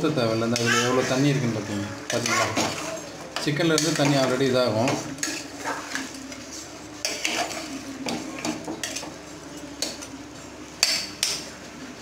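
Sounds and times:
metal spoon scraping a pot: 7.0 - 7.8.

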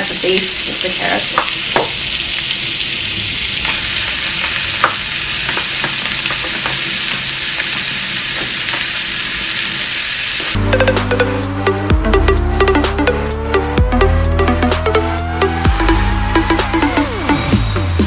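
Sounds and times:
vegetables sizzling in oil: 0.0 - 10.6
electronic music: 10.6 - 18.0.

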